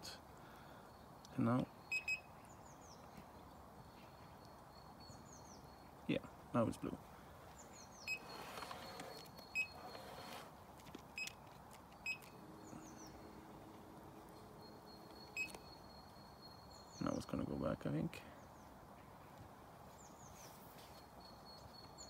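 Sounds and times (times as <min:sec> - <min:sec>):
faint bird chirps: 0:00.5 - 0:06.3, 0:12.0 - 0:19.3
remote control short beeps: 0:01.9 - 0:02.3, 0:12.0 - 0:12.4, 0:15.4 - 0:15.7.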